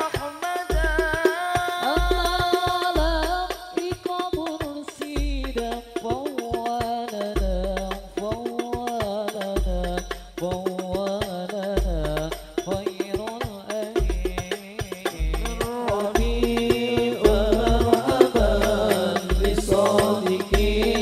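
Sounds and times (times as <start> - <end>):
man singing into microphone: 0.0 - 21.0
frame drum strikes: 15.1 - 21.0.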